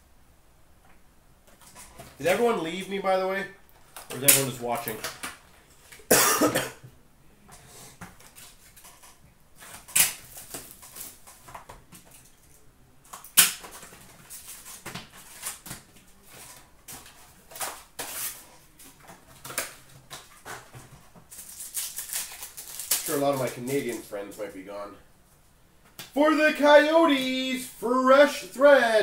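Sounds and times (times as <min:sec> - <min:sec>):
wrappers crinkling and rustling: 0:08.2 - 0:12.6, 0:13.6 - 0:24.5
foil packs tearing: 0:13.6 - 0:18.5, 0:21.3 - 0:24.2.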